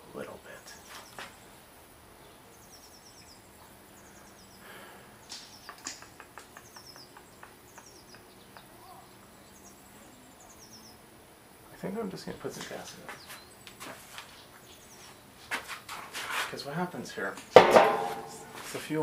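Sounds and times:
bird chirps: 0:02.2 - 0:04.6, 0:05.2 - 0:11.0.

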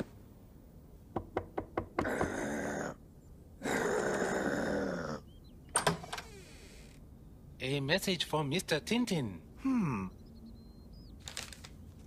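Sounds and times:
knocking on door: 0:01.1 - 0:02.4.

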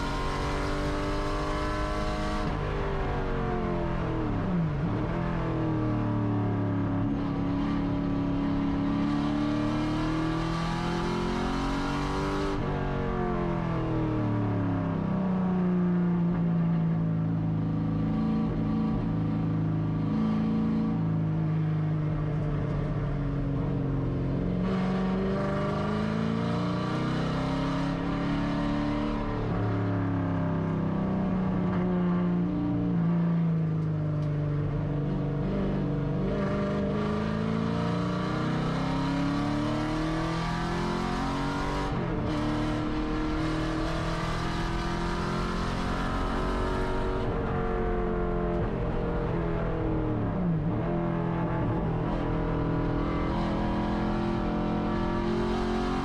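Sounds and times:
race car engine revving: 0:35.4 - 0:56.0.

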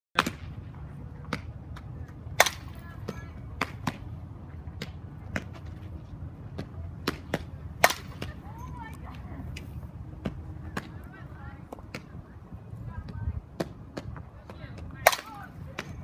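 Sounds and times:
bat striking softballs: 0:00.2 - 0:00.6, 0:01.3 - 0:04.1, 0:06.5 - 0:08.7, 0:13.6 - 0:16.0.

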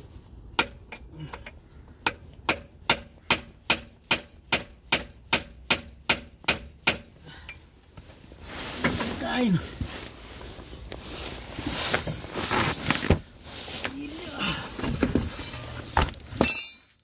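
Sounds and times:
hammer striking metal: 0:16.4 - 0:16.9.

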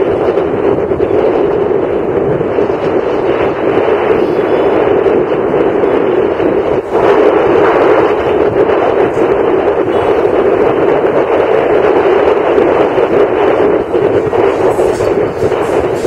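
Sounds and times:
road noise: 0:00.0 - 0:16.0
wind rushing on microphone: 0:00.0 - 0:16.0.

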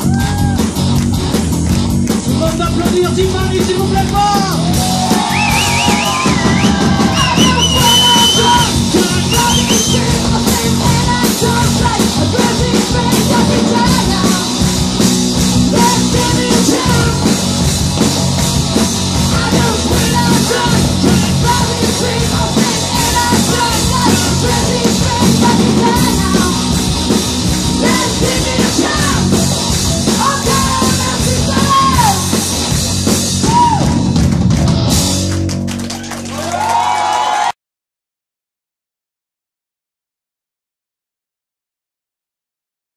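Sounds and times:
rock band playing: 0:00.0 - 0:37.5
woman singing: 0:09.7 - 0:14.6, 0:19.3 - 0:26.6, 0:27.8 - 0:29.4, 0:30.1 - 0:32.2.

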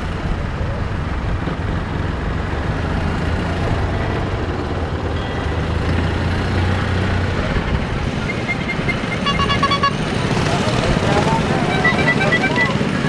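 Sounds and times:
vehicle engines rumbling: 0:00.0 - 0:13.0
high-pitched tones: 0:08.2 - 0:10.1, 0:11.1 - 0:13.0.

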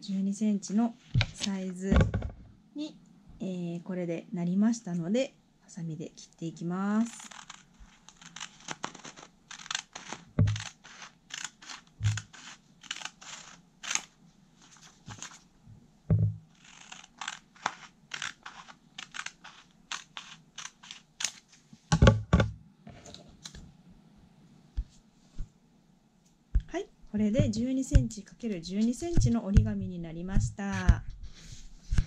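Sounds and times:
scissors snipping paper: 0:07.1 - 0:14.1, 0:14.7 - 0:15.4, 0:16.6 - 0:21.4.

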